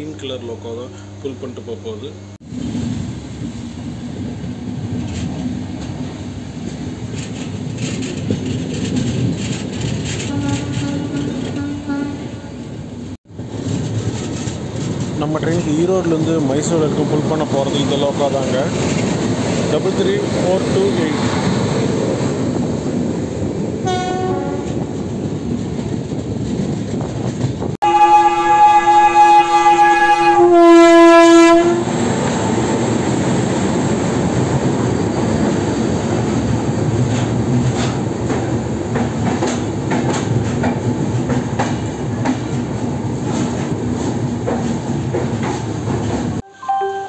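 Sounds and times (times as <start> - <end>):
train rumbling on rails: 2.3 - 46.4
locomotive horn blasts: 10.2 - 12.7, 23.8 - 24.8, 27.8 - 31.9.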